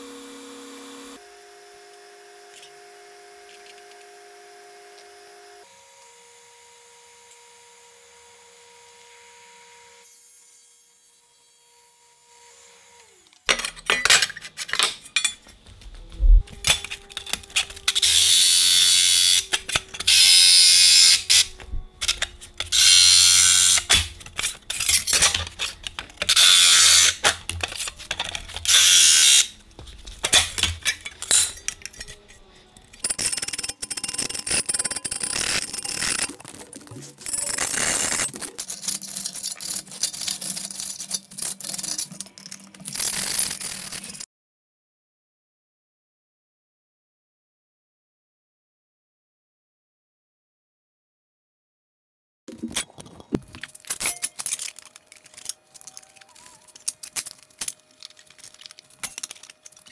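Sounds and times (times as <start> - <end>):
jigsaw cutting metal sheet: 16.5 - 42.2, 42.8 - 44.2.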